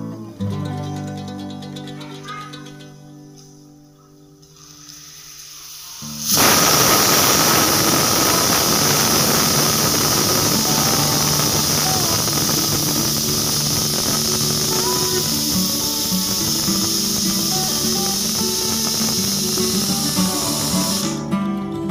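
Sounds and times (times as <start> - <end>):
pressure cooker whistle hissing: 4.7 - 21.2.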